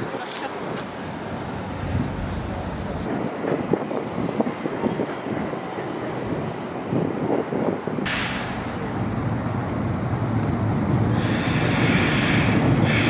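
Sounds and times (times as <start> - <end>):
passing traffic rumble: 0.0 - 13.0
wind on microphone: 1.6 - 13.0.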